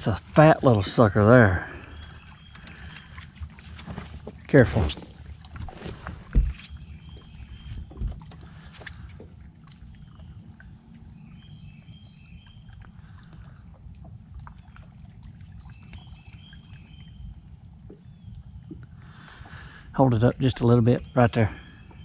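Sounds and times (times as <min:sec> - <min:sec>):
low boat rumble: 0:00.0 - 0:22.0
bird chirping: 0:01.6 - 0:03.2, 0:06.2 - 0:08.1, 0:09.9 - 0:12.8, 0:15.7 - 0:17.4, 0:20.0 - 0:22.0.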